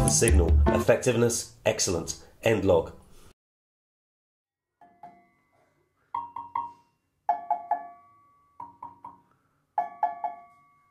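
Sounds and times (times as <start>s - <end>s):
agogo bell struck with mallet: 6.2s - 9.2s, 9.8s - 10.6s.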